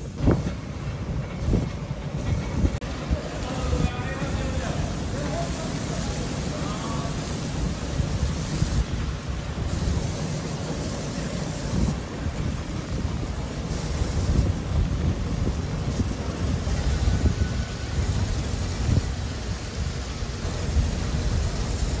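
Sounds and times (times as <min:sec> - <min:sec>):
wind on microphone: 0:00.0 - 0:04.2, 0:07.7 - 0:10.2, 0:11.5 - 0:22.0
fire hose water spraying: 0:00.0 - 0:22.0.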